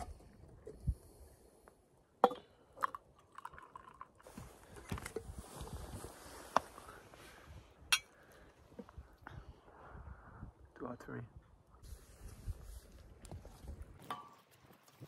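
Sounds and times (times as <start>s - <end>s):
tea pouring: 2.7s - 4.5s.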